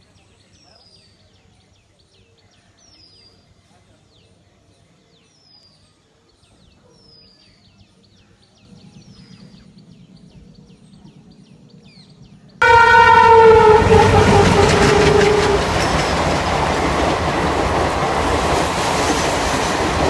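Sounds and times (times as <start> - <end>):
low rumble: 8.7 - 17.5
train horn blaring: 12.6 - 18.7.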